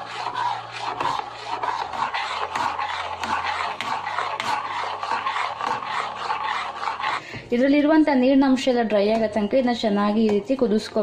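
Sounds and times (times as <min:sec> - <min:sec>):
metal spoon scraping a pan: 0:00.0 - 0:07.4.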